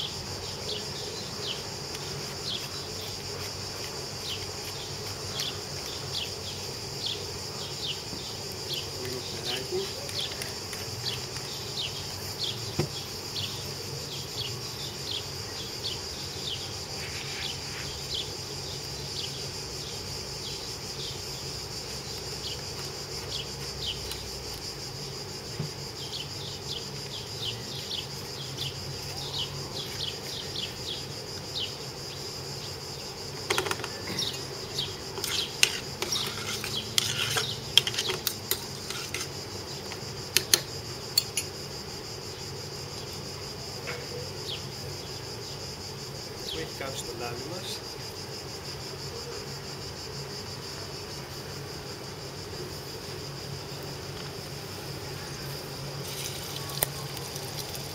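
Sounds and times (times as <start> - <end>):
cicadas droning: 0.0 - 57.9
spoon scraping metal pan: 35.2 - 39.3
pepper mill grinding: 56.0 - 57.9.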